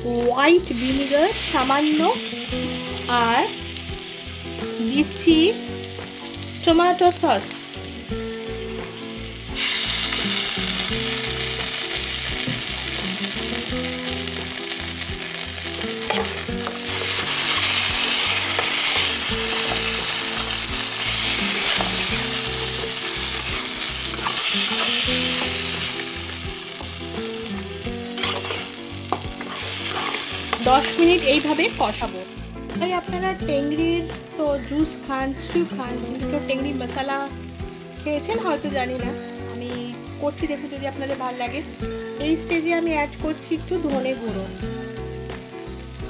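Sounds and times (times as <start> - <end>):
meat sizzling in oil: 0.0 - 46.0
metal spatula scraping pan: 23.3 - 26.0, 28.1 - 31.0.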